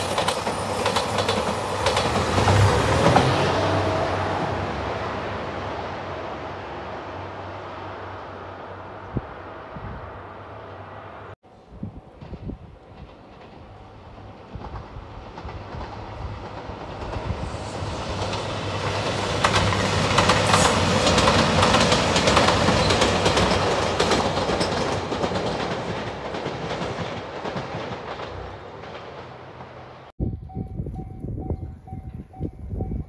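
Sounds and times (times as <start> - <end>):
wheels clacking over rail joints: 0.0 - 4.3, 12.1 - 30.1
diesel train passing: 0.0 - 30.1.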